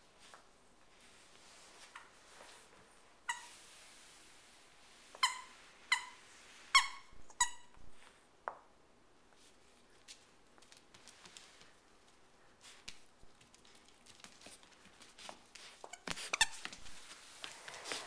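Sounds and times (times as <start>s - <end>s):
dog toy squeaking: 5.2s - 6.2s, 6.8s - 7.7s, 15.9s - 16.7s.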